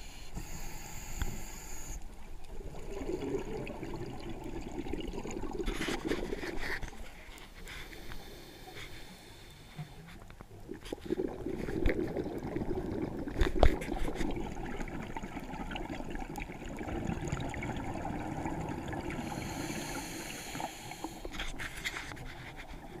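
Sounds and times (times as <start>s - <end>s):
scuba regulator bubbles gurgling: 2.4s - 7.1s, 10.5s - 21.7s.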